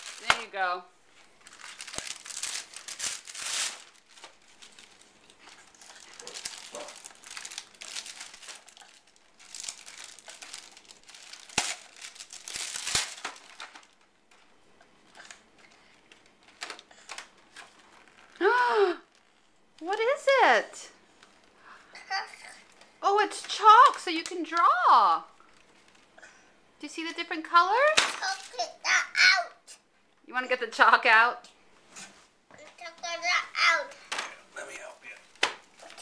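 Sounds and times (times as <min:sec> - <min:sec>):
wrapping paper tearing and rustling: 0:00.0 - 0:00.5, 0:01.2 - 0:14.1, 0:15.0 - 0:18.4, 0:28.2 - 0:28.8, 0:35.2 - 0:36.0.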